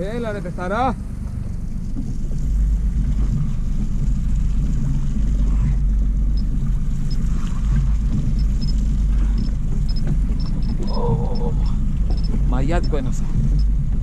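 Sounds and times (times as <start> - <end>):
boat engine rumble: 0.0 - 14.0
wind on microphone: 2.7 - 14.0.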